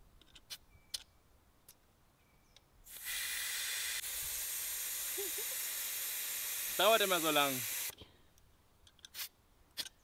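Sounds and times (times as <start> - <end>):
air hissing from tyre valve: 2.9 - 8.0.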